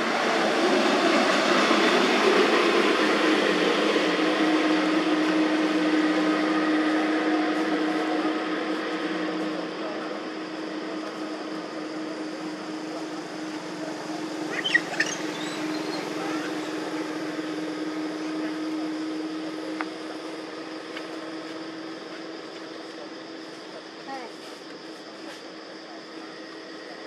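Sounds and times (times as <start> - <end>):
low drone hum: 0.0 - 21.2
short high squeaks: 14.5 - 16.0.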